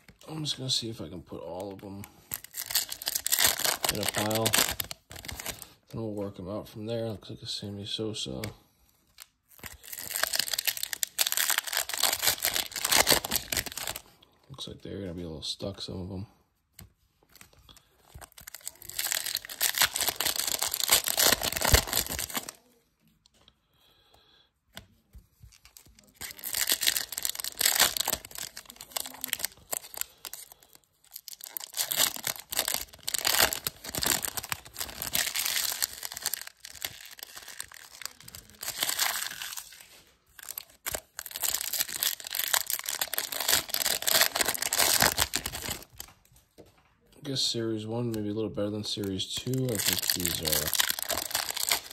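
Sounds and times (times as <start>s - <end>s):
foil wrappers tearing and crinkling: 2.2s - 5.7s, 9.5s - 14.0s, 17.7s - 22.6s, 25.5s - 46.1s, 48.9s - 51.9s.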